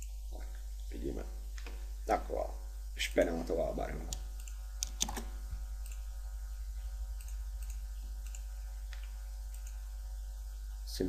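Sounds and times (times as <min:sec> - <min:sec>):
low electrical hum: 0:00.0 - 0:11.0
computer mouse clicking: 0:04.1 - 0:06.1, 0:07.2 - 0:09.9.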